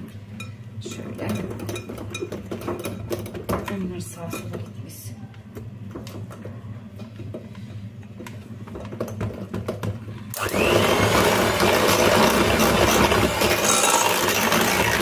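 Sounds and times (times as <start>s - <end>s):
mixer beaters clicking: 9.0s - 15.0s
electric hand mixer whirring: 10.3s - 15.0s.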